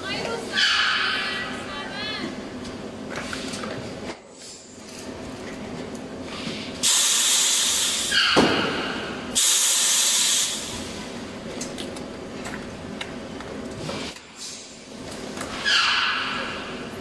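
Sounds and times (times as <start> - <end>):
hissing air bursts: 6.8 - 8.1, 9.4 - 11.0, 14.1 - 15.0.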